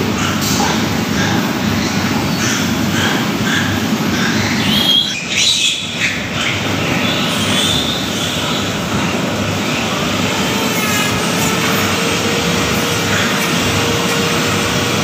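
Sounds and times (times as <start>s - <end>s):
exhaust fans noise: 0.0s - 15.0s
piglet squealing: 10.2s - 14.5s.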